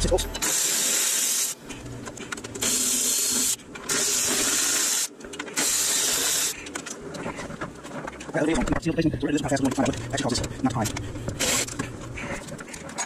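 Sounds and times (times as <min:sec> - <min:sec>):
cordless ratchet whirring: 0:09.8 - 0:12.2.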